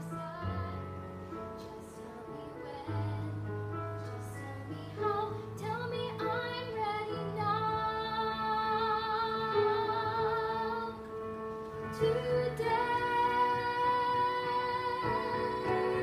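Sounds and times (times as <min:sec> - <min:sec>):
instrumental accompaniment: 0:08.8 - 0:16.0
girl singing with vibrato: 0:12.0 - 0:16.0.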